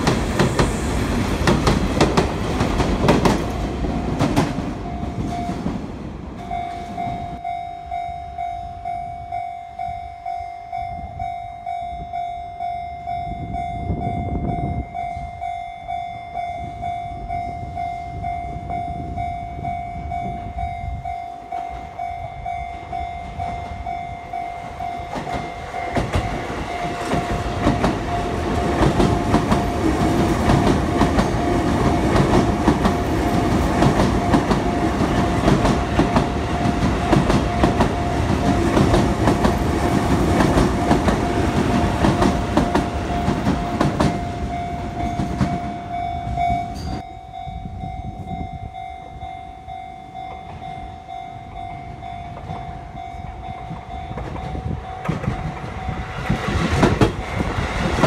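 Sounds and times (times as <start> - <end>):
train wheels clattering over rails: 0.0 - 7.1, 24.6 - 45.8, 53.3 - 58.0
level crossing warning bell: 0.0 - 58.0.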